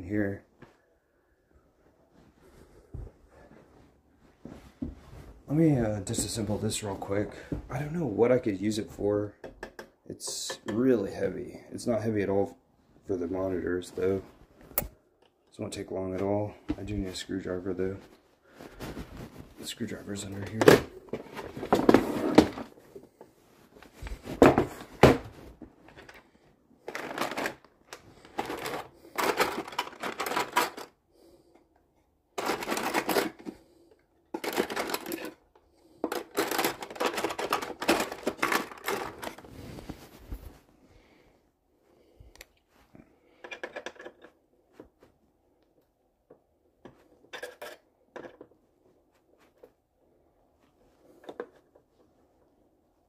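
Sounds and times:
tools clattering in wooden box: 0:28.3 - 0:30.9, 0:32.4 - 0:33.5, 0:34.3 - 0:35.4, 0:36.1 - 0:39.4.

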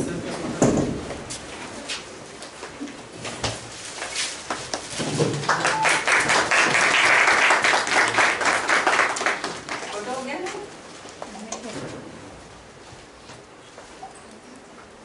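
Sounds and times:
audience clapping: 0:04.7 - 0:10.1.

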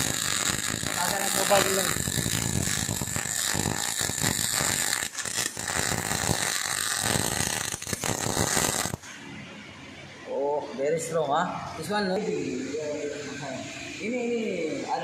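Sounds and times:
welding arc crackling: 0:00.0 - 0:09.1.

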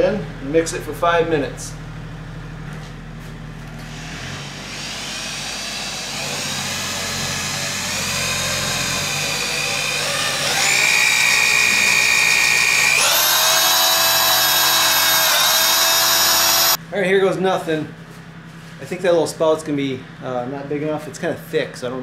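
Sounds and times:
electric drill mixing compound: 0:03.9 - 0:16.8.

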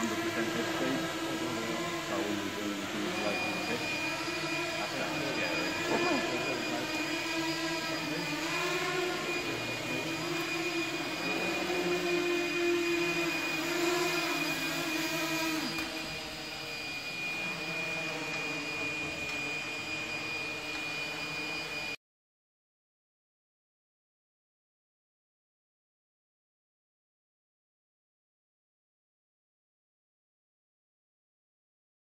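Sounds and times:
model aircraft motors whining: 0:00.0 - 0:22.0.

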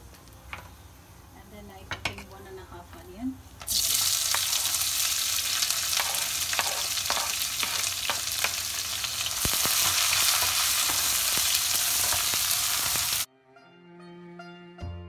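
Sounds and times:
onions sizzling in hot oil: 0:03.6 - 0:13.3
wooden spatula scraping wok: 0:05.4 - 0:09.0
music: 0:13.3 - 0:15.0.

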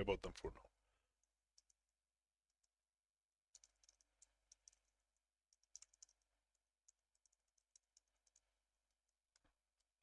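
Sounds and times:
typing on computer keyboard: 0:03.5 - 0:10.0.

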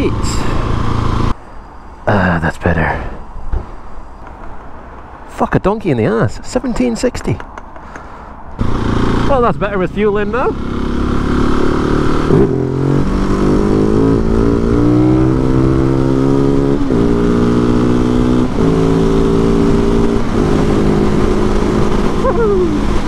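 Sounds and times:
motorcycle engine accelerating: 0:00.0 - 0:01.4, 0:08.6 - 0:23.0.

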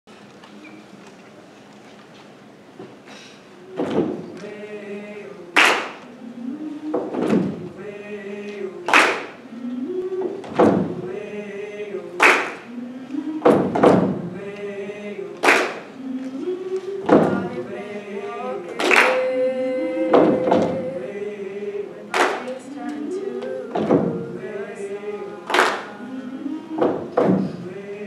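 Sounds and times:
treble choir singing chords: 0:03.6 - 0:28.0
body-percussion hits: 0:07.0 - 0:07.7, 0:10.4 - 0:11.0, 0:13.4 - 0:14.2.

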